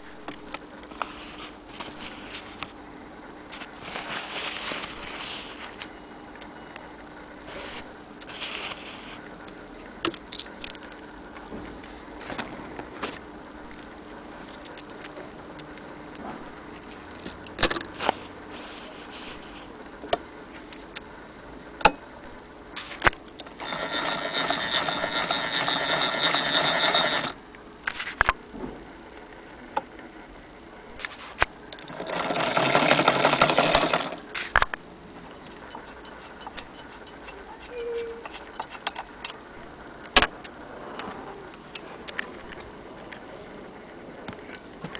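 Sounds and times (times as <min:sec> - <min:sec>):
hand-crank sewing machine clatter: 0:23.5 - 0:27.4, 0:31.8 - 0:34.2.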